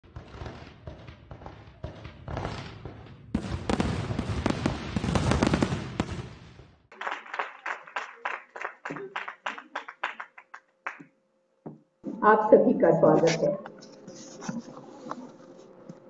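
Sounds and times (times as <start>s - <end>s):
fireworks popping and crackling: 0.0s - 10.5s
hands clapping: 6.9s - 11.1s.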